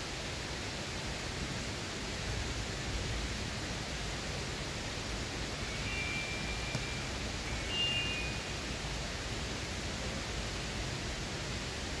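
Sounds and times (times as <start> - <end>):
stream water flowing: 1.6 - 12.0
faint high thin tones: 5.6 - 9.0.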